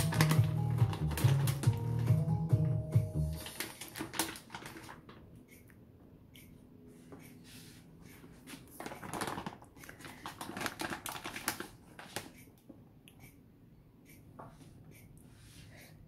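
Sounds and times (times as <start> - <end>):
plastic bag crinkling: 0.0 - 2.1, 3.3 - 5.2, 8.7 - 12.3.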